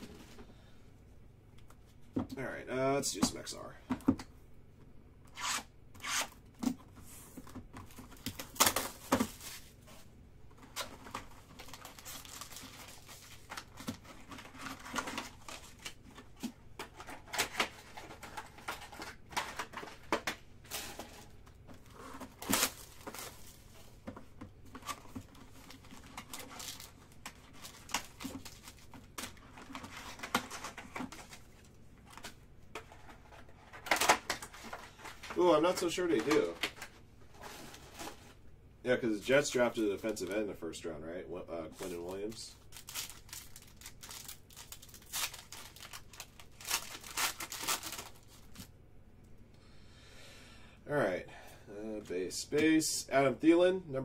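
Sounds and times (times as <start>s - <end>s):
foil wrappers tearing and crinkling: 8.1s - 9.8s, 10.7s - 16.0s, 22.2s - 23.7s, 24.8s - 31.4s, 41.8s - 48.7s.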